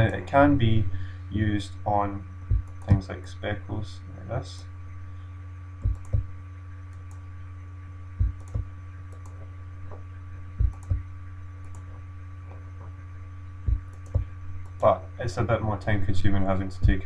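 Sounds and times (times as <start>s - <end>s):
low electrical hum: 0.0s - 17.0s
computer mouse clicks: 5.8s - 6.2s, 8.2s - 10.0s, 10.6s - 11.0s, 11.6s - 12.6s, 13.7s - 14.9s.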